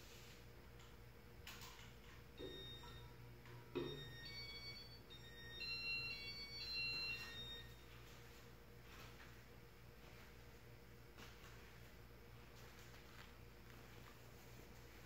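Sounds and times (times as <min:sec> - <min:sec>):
ceiling fan low hum: 0:00.0 - 0:15.0
electronic beeps: 0:02.4 - 0:03.1, 0:03.8 - 0:07.8.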